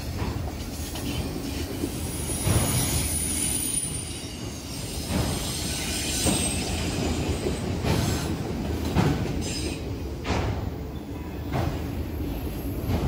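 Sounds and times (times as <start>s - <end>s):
steel wheels rumbling on rail: 0.0s - 13.0s
high wheel squeal: 2.1s - 7.4s.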